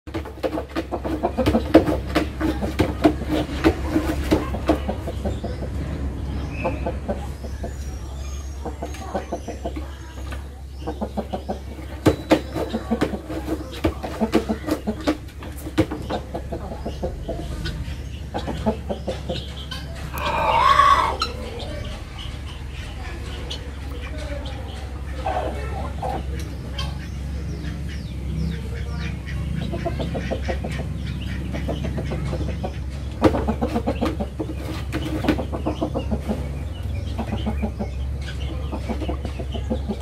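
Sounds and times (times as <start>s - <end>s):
rooster clucking: 0.1s - 40.0s
rooster call rising and falling: 20.1s - 21.2s.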